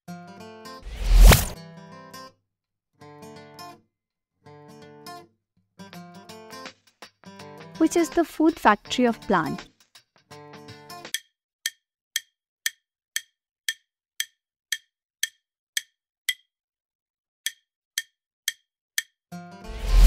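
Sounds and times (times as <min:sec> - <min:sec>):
rushing sound effect: 0:00.9 - 0:01.6
wooden timer ticks: 0:11.1 - 0:16.5, 0:17.4 - 0:19.2.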